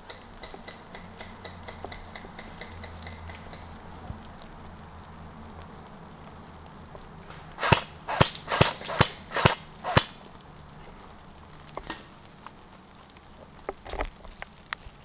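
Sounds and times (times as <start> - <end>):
airsoft pistol shots: 7.6 - 10.2.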